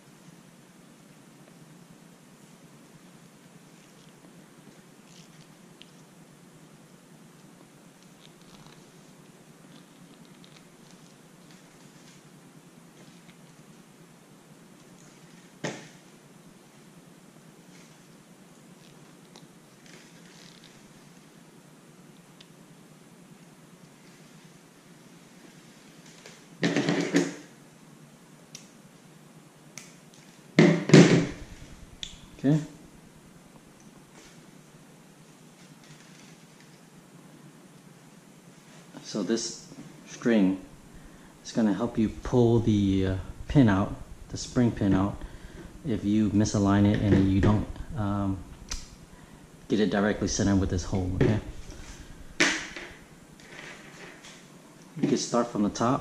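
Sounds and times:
fishing line clicks and rustles: 4.8s - 6.1s
steady low hum: 30.9s - 35.7s, 36.8s - 53.5s, 54.6s - 56.0s.

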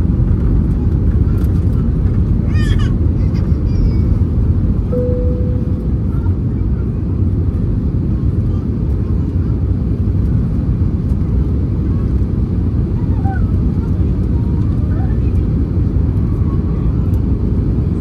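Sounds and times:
airplane cabin engine roar: 0.0s - 18.0s
short steady tone: 4.9s - 6.1s.

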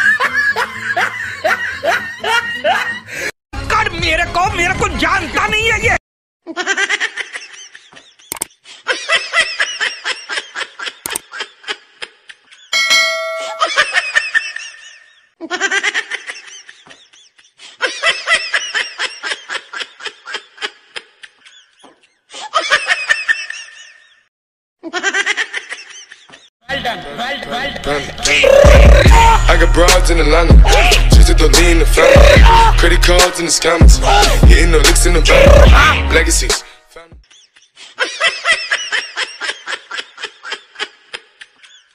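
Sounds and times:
loud laughter: 0.0s - 3.1s, 6.5s - 12.7s, 13.4s - 26.5s, 35.3s - 36.2s, 37.3s - 41.9s
short bell-like ding: 12.8s - 14.0s.

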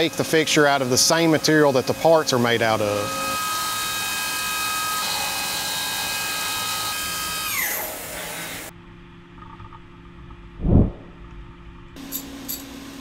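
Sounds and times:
end mill cutting metal: 0.0s - 8.7s.

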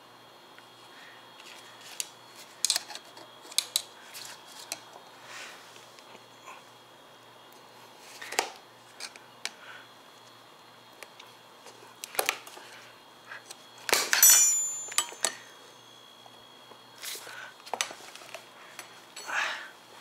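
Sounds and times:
brief metallic ring: 14.1s - 15.5s
metal tyre levers clinking on rim: 14.1s - 15.5s.

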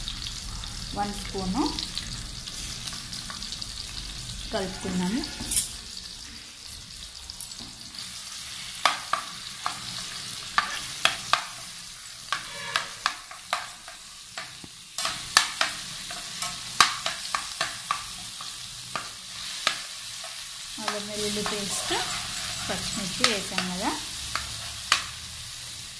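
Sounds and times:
food sizzling in oil: 0.0s - 25.9s
spoon scraping pan: 4.5s - 6.4s, 8.3s - 25.2s.

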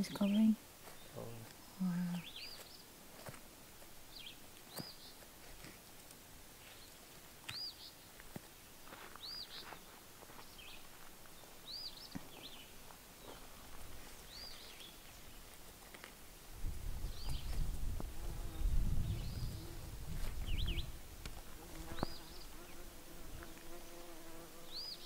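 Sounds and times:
bird singing: 0.0s - 2.9s, 4.1s - 5.2s, 6.6s - 8.1s, 9.2s - 9.8s, 10.4s - 15.5s, 18.4s - 19.8s, 20.4s - 20.9s, 21.8s - 22.8s, 23.9s - 25.0s.

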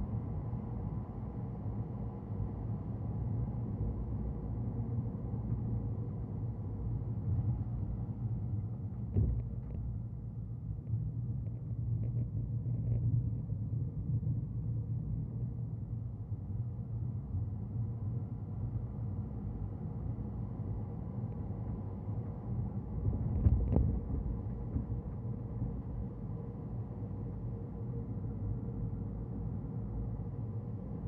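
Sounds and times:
car engine and tyre rumble: 3.7s - 31.0s
knock: 9.1s - 9.4s.

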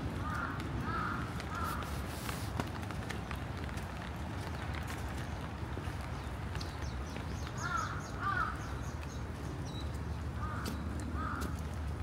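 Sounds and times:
crow cawing: 0.2s - 1.8s, 7.6s - 8.6s, 10.4s - 11.6s.

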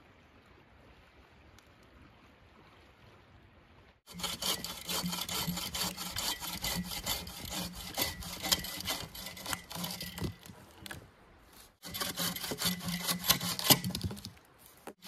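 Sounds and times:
bow saw cutting through log: 4.1s - 11.0s, 11.8s - 15.0s.

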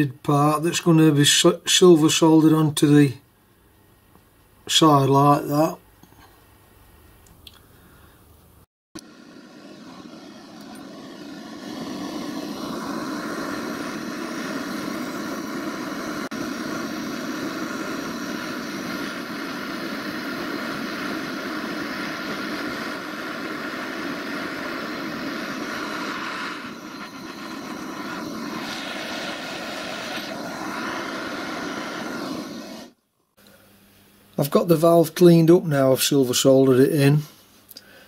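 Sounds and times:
blowtorch flame rushing: 9.0s - 33.0s.

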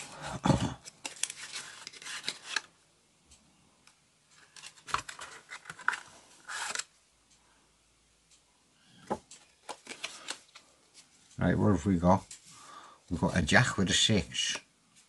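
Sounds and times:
cardboard and playing cards rustling: 0.0s - 2.7s, 4.4s - 6.8s, 9.1s - 11.1s.

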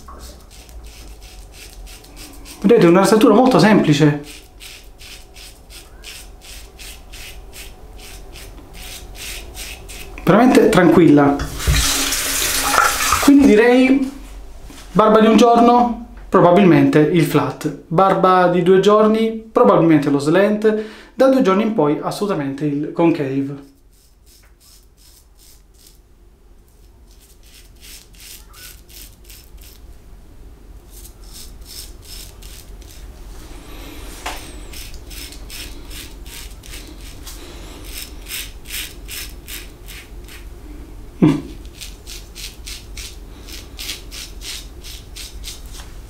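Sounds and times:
razor scraping stubble: 0.0s - 10.8s, 23.6s - 26.0s, 26.7s - 29.9s, 30.9s - 40.5s, 41.5s - 45.9s.

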